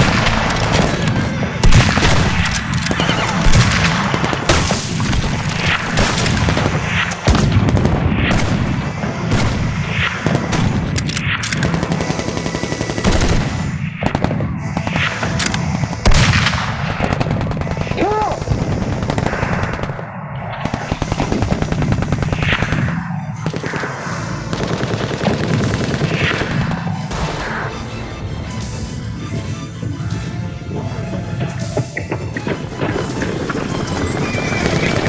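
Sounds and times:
crackle of gunfire: 0.0 - 27.7.

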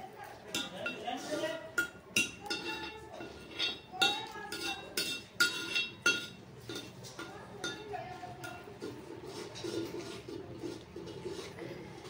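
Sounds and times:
metal ladle clinking against pot: 0.5 - 8.9.

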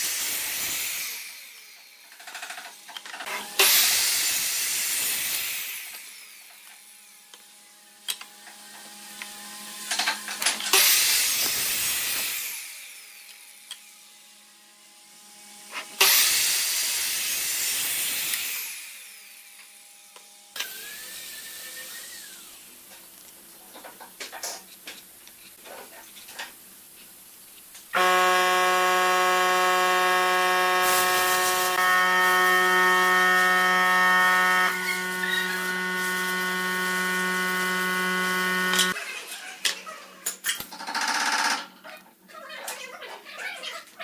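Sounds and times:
miter saw cutting boards: 0.0 - 14.1, 15.2 - 22.7, 27.9 - 39.0.

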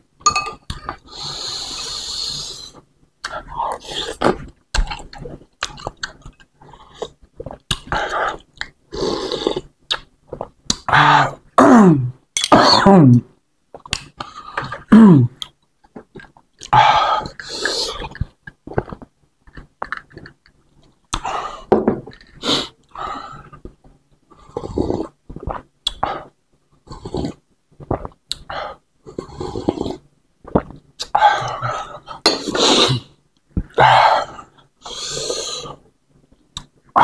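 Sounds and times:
slurping and swallowing broth: 29.1 - 33.1.

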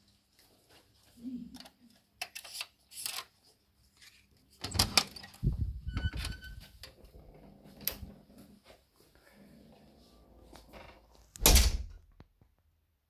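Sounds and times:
door latch clicks: 11.4 - 11.9
door thuds and rumble: 11.4 - 12.0.

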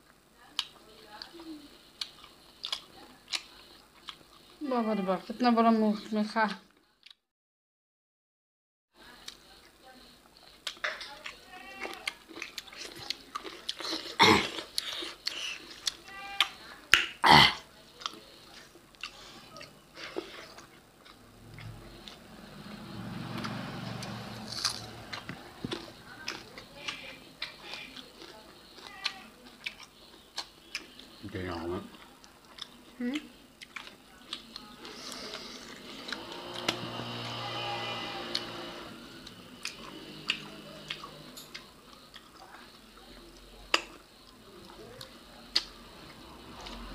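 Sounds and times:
chewing and lip smacks: 2.0 - 4.6, 10.4 - 17.1, 17.9 - 22.2, 23.3 - 31.2, 31.9 - 35.4, 39.6 - 45.8
faint low hum: 9.0 - 46.9
low hum: 21.0 - 26.6.

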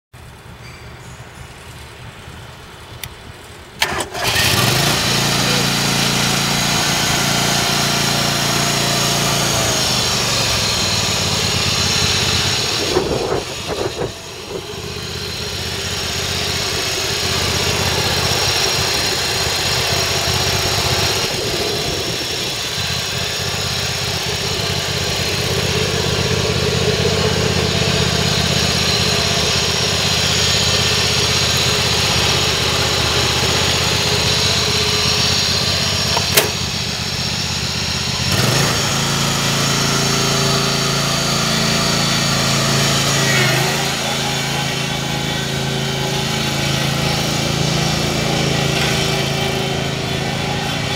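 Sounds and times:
lawn tractor engine running: 1.4 - 50.9
sharp click: 36.1 - 36.6.

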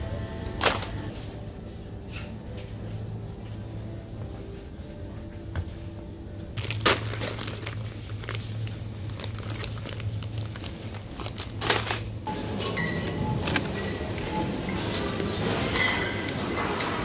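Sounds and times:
steady low hum: 0.0 - 17.0
plastic packets crinkling: 6.6 - 12.2.

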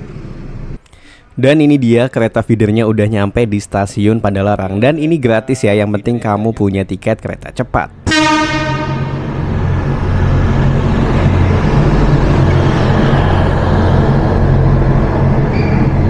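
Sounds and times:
train rumbling past: 8.0 - 16.0.

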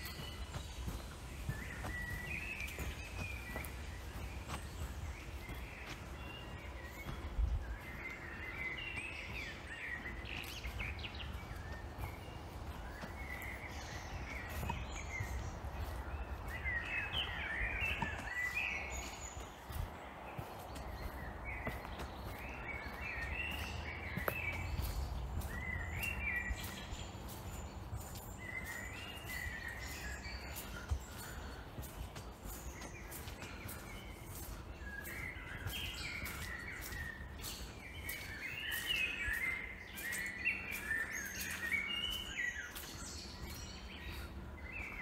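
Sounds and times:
birds chirping and trilling: 0.0 - 45.0
footsteps on soft earth: 0.0 - 45.0.

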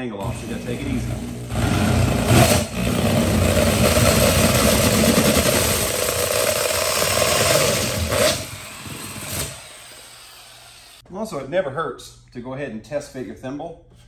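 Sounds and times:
drill with hole saw cutting: 0.2 - 11.0.

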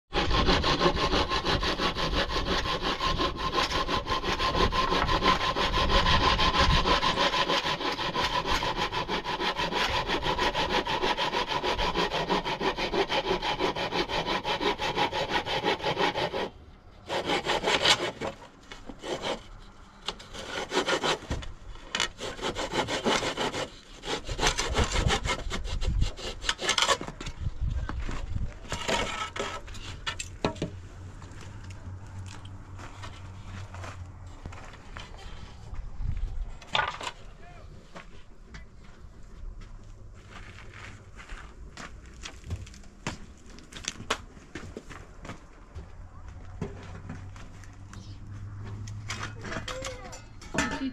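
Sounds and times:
scrapes on wood: 0.1 - 16.5, 17.1 - 27.3, 28.0 - 30.6
handsaw cutting wood: 0.1 - 27.2.

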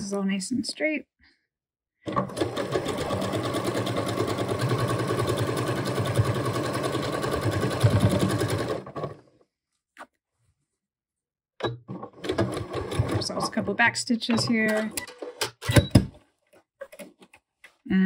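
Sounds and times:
sewing machine stitching: 2.1 - 9.4, 11.9 - 13.8.

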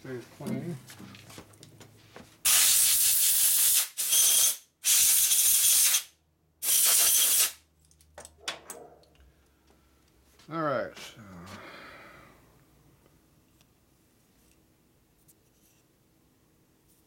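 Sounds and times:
compressed air blow gun hissing: 2.5 - 7.6.

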